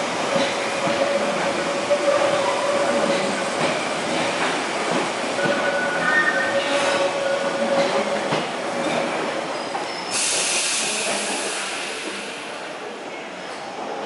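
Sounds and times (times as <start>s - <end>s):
train running on rails: 0.0s - 14.0s
loud hiss: 10.1s - 12.7s.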